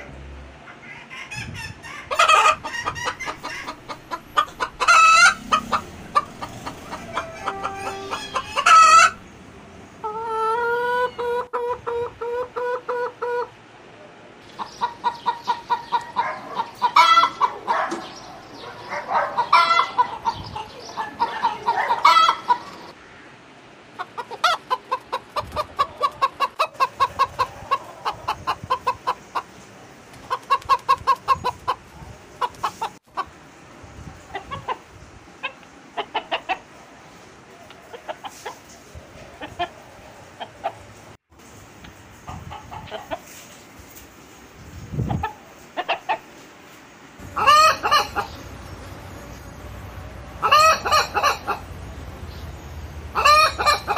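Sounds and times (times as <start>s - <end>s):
rooster clucking: 0.6s - 9.3s, 10.0s - 13.6s, 14.6s - 18.0s, 19.1s - 23.0s, 24.0s - 29.6s, 30.2s - 33.3s, 34.3s - 36.7s, 37.8s - 38.7s, 39.3s - 40.9s, 45.1s - 46.3s, 47.2s - 48.7s, 50.4s - 51.8s, 53.1s - 53.9s.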